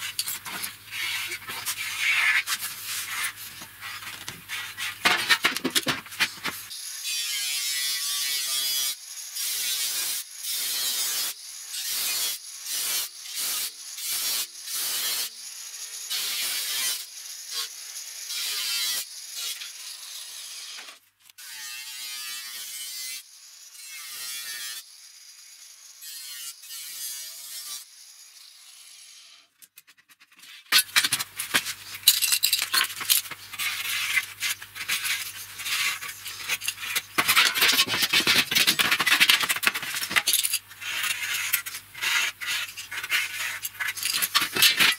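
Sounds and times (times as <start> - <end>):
angle grinder cutting sheet steel: 0.0 - 29.4, 30.7 - 44.9
sheet metal rattling and scraping: 30.8 - 41.2.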